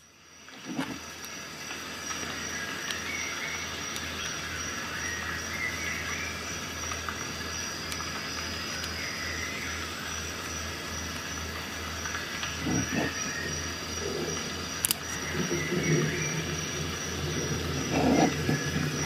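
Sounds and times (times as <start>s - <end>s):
background hiss: 0.0s - 19.0s
high-pitched whine: 11.5s - 19.0s
low pulsing hum: 11.5s - 19.0s.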